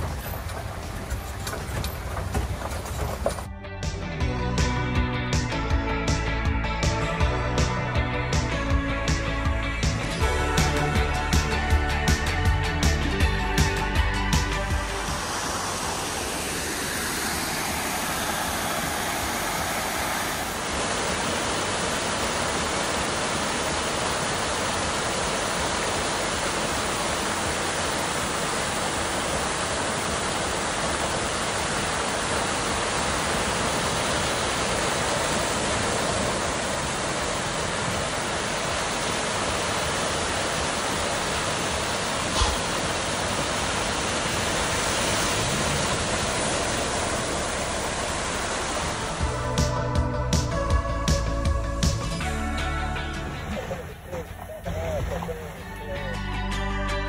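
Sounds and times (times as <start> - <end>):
water rushing over rocks: 13.8 - 49.8.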